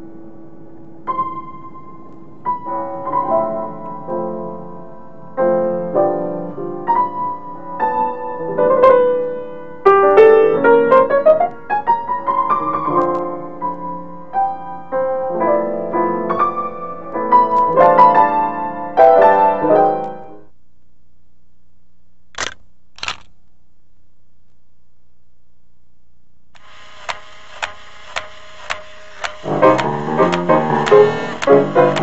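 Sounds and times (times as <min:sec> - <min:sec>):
solo piano music: 0:00.0 - 0:20.5, 0:29.5 - 0:32.0
camera shutter clicks: 0:22.4 - 0:23.3, 0:27.0 - 0:29.5.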